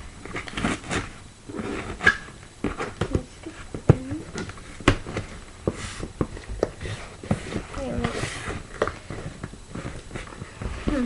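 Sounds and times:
cardboard flaps rustling and scraping: 0.0s - 11.0s
taps and knocks on cardboard: 2.6s - 8.1s.

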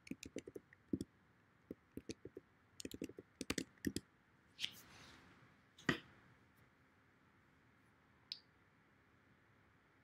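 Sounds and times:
typing on computer keyboard: 0.0s - 1.0s, 2.0s - 4.0s.

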